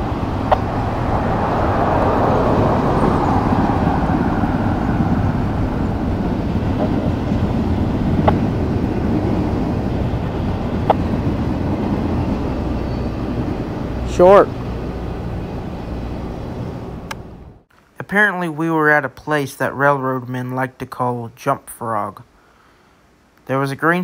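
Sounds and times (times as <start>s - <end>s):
freight train rumbling past: 0.0s - 17.7s
sharp knocks: 8.2s - 8.5s.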